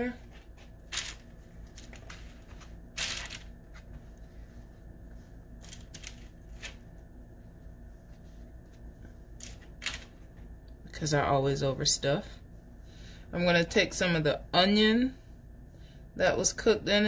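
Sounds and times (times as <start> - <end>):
soft rustles of food handling: 0.0 - 10.7
faint steady hum: 0.0 - 17.0.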